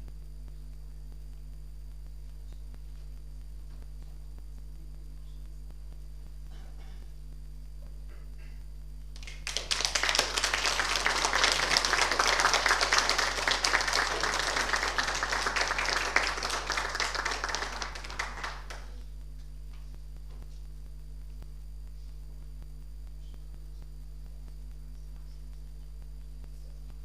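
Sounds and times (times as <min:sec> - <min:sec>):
audience applauding: 0:09.2 - 0:19.0.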